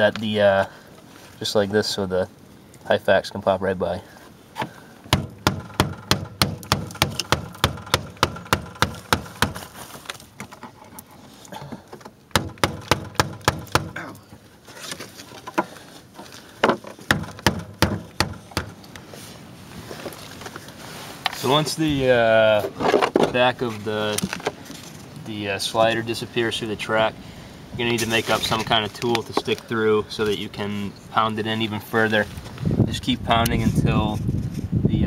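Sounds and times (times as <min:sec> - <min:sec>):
blows pounding plastic on metal rail: 0:05.1 - 0:09.7, 0:12.3 - 0:14.0.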